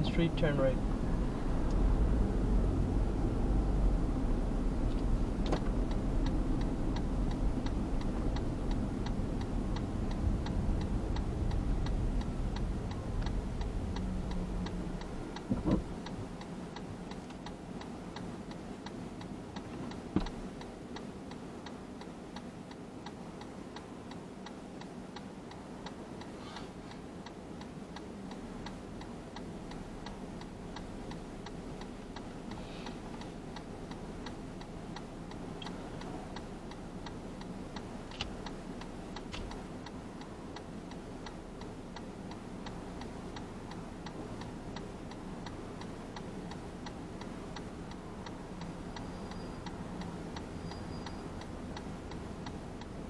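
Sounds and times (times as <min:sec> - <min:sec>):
car road and engine rumble: 0:00.0 - 0:53.0
car turn signal ticking: 0:00.0 - 0:53.0.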